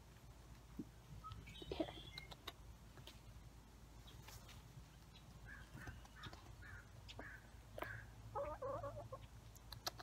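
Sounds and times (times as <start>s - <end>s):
chickens clucking softly: 5.1s - 10.0s
sharp clicks: 9.5s - 10.0s.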